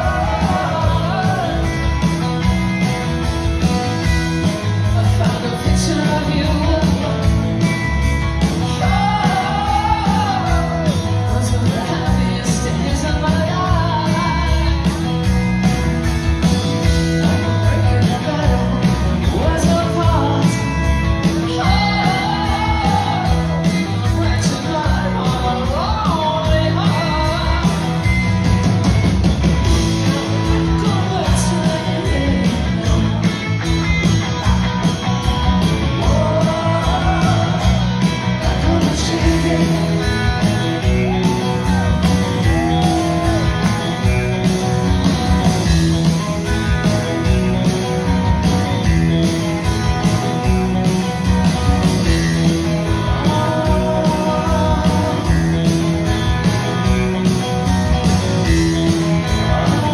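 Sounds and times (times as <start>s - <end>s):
woman singing lead vocal: 0.0s - 1.7s, 8.7s - 14.8s, 21.4s - 23.4s, 53.0s - 55.4s
live rock band playing: 0.0s - 59.9s.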